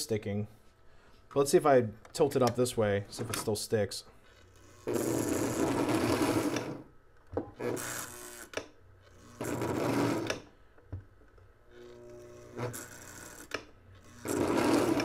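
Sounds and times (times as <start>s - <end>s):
electric motor whirring: 11.7s - 15.0s.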